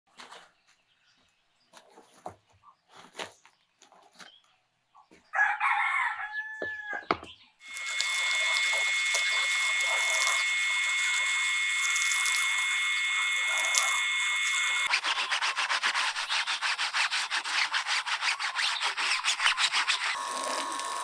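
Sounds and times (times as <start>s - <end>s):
rooster crowing: 5.3s - 7.0s
power tool whining: 7.6s - 15.0s, 19.0s - 21.0s.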